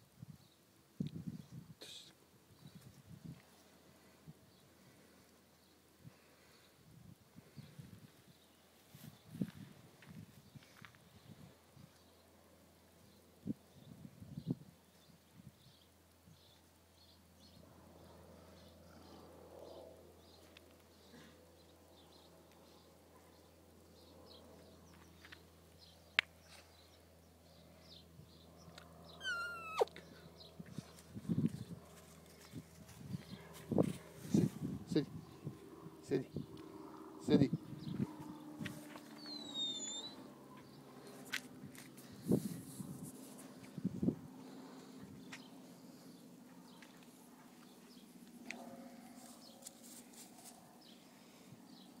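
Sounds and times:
high animal cry: 29.1s - 30.0s
faint bird chirps: 29.1s - 30.2s, 39.2s - 40.7s.

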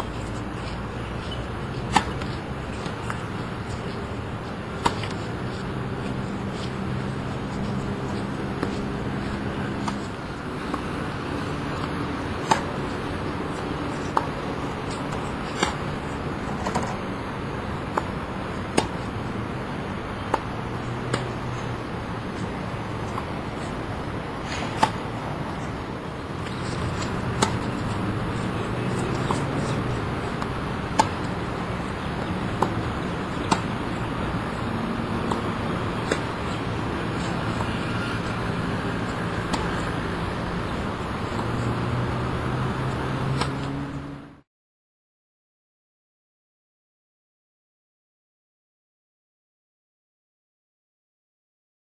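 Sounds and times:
steady background noise: 0.0s - 44.4s
tennis ball struck by racquets: 0.3s - 15.9s, 16.5s - 17.0s, 18.7s - 19.1s, 20.3s - 21.4s, 24.4s - 25.6s, 26.4s - 41.7s.

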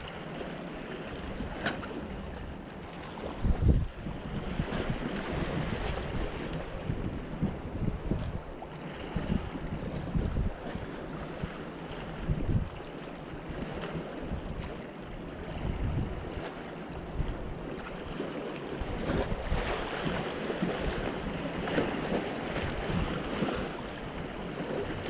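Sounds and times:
waves splashing against boulders: 0.0s - 25.0s
wind buffeting microphone: 1.2s - 25.0s.

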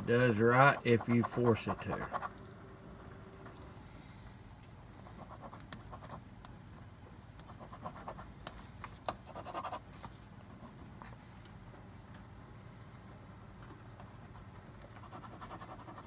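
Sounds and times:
pen scratching on paper: 0.5s - 2.4s, 5.1s - 6.2s, 7.4s - 10.3s, 14.1s - 16.0s.

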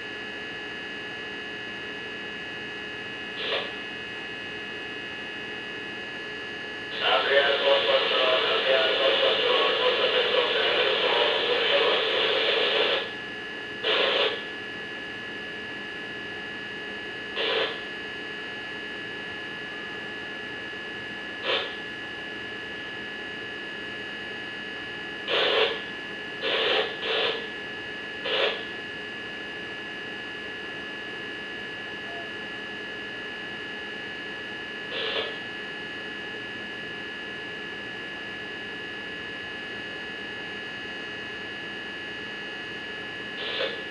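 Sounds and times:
electrical hum with whine tones: 0.0s - 43.9s
static-like noise bursts: 3.4s - 3.7s, 7.0s - 13.1s, 13.8s - 14.4s, 17.4s - 17.8s, 21.4s - 21.8s, 25.2s - 27.5s, 28.2s - 28.7s, 34.9s - 35.4s, 43.4s - 43.9s.

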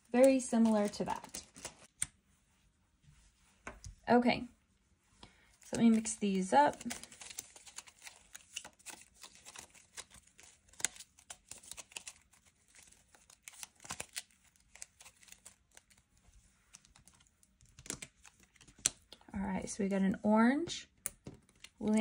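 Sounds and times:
paper cards rustling: 0.0s - 2.2s, 5.6s - 19.2s, 21.1s - 22.0s.

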